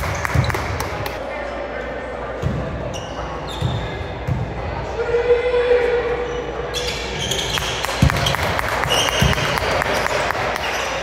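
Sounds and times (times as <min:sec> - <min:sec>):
sneakers squeaking on hardwood: 0:02.4 - 0:04.4, 0:06.7 - 0:11.0
basketball bouncing: 0:07.9 - 0:10.2.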